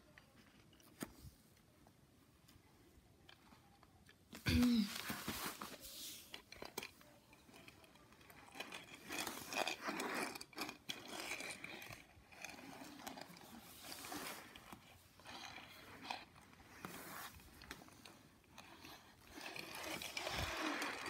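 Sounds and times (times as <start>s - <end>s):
toy cars scraping on play mat: 4.9s - 21.0s
plastic toy pieces clicking: 6.4s - 13.6s.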